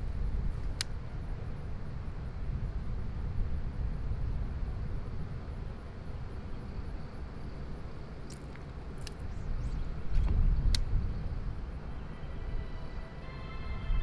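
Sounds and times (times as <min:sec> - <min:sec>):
wind buffeting microphone: 0:00.0 - 0:14.0
sharp clicks: 0:00.6 - 0:01.0, 0:08.2 - 0:09.3, 0:10.1 - 0:11.0.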